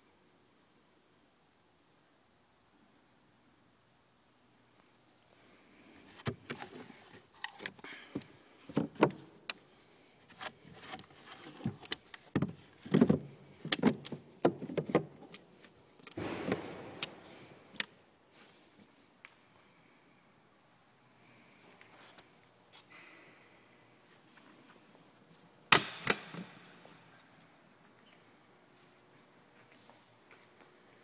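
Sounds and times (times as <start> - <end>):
handling knocks and clicks: 6.1 - 9.6, 10.3 - 17.9, 25.7 - 26.9.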